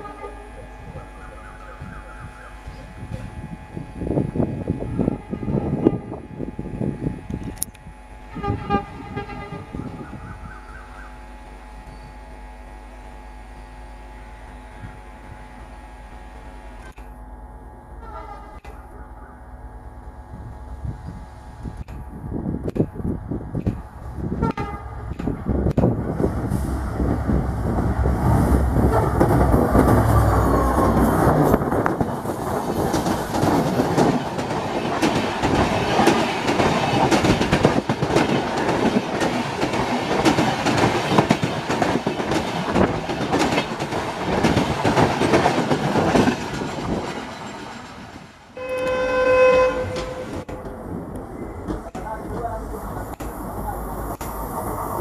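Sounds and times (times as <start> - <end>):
locomotive horn blast: 0.0 - 0.6, 4.9 - 6.3, 8.3 - 9.8, 17.9 - 18.7, 24.3 - 25.1, 28.4 - 31.1, 48.6 - 50.5
diesel locomotive engine passing: 0.0 - 55.0
train wheels clickety-clack: 22.7 - 26.8, 27.7 - 50.8, 51.6 - 53.5.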